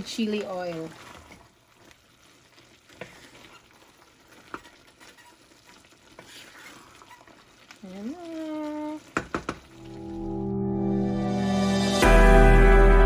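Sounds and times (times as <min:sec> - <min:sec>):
vegetables sizzling in a pan: 0:00.0 - 0:10.6
spatula knocking against pan: 0:09.2 - 0:09.6.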